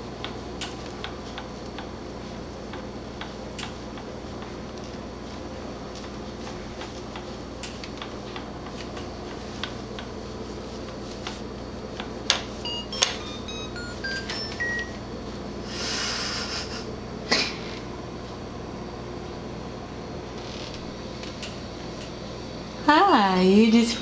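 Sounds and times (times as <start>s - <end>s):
electronic toy tune beeping: 12.6s - 15.0s.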